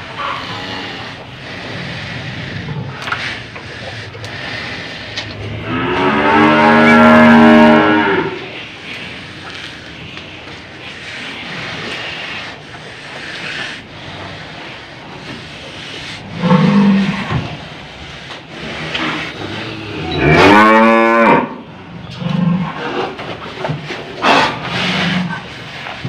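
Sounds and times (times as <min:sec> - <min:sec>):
cow bellowing: 0:05.2 - 0:08.6, 0:16.2 - 0:17.3, 0:19.0 - 0:22.8.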